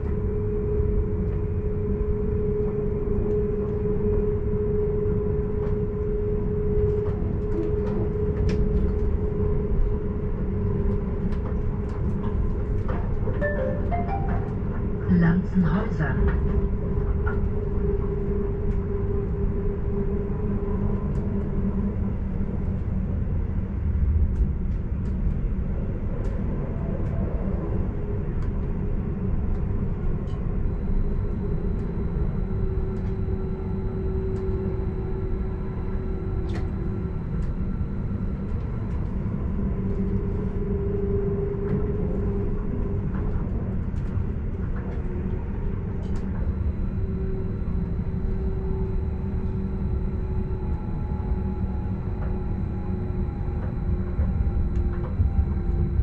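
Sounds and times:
electric drive hum: 30.6 - 42.4, 44.1 - 56.0.

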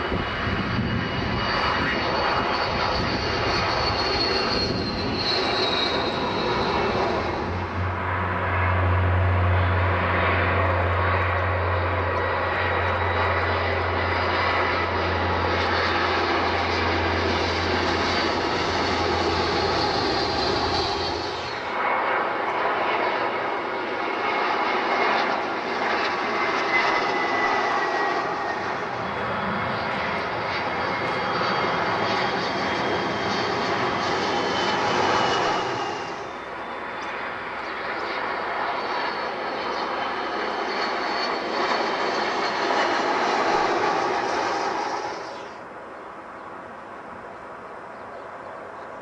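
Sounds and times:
jet airliners passing overhead: 0.0 - 49.0.

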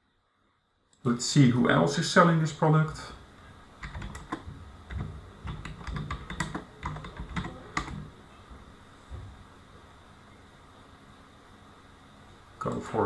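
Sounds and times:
keyboard key clicks: 3.8 - 8.1.

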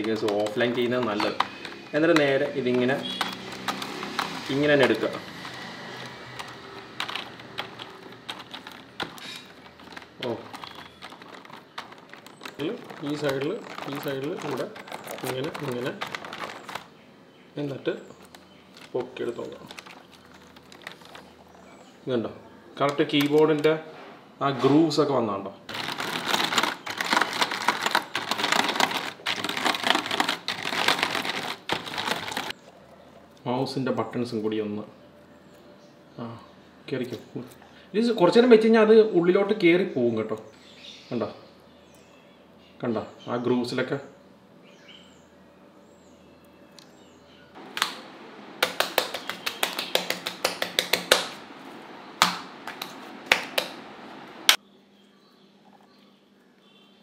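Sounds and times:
keyboard keys clattering: 0.0 - 17.0, 17.6 - 22.0, 25.7 - 32.6.

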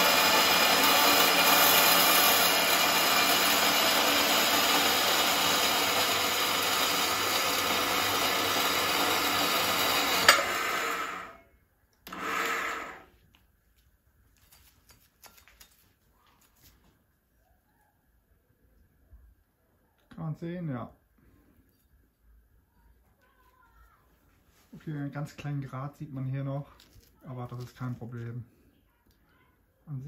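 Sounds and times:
band saw cutting steel: 0.0 - 11.4, 12.1 - 13.1.

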